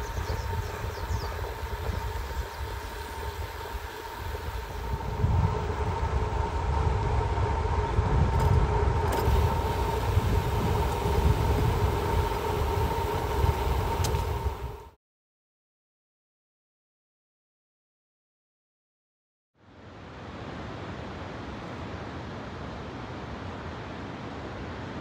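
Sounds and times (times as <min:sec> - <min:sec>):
steady hum: 0:00.0 - 0:15.0
vehicle road noise: 0:00.0 - 0:15.0
wind rushing over microphone: 0:00.0 - 0:15.0.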